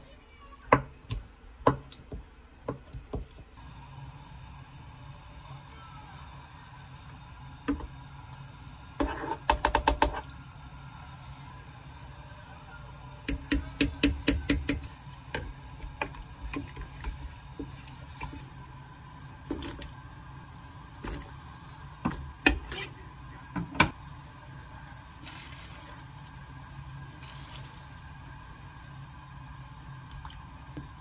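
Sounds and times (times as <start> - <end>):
sharp taps on cooking pot: 13.3 - 14.9.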